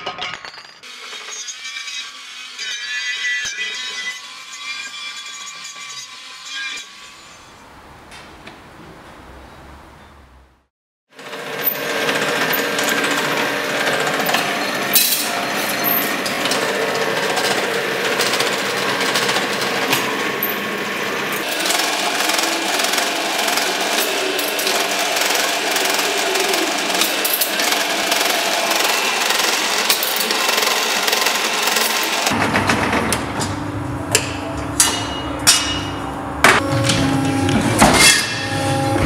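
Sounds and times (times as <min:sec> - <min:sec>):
rolling machine clatter: 0:11.4 - 0:33.6.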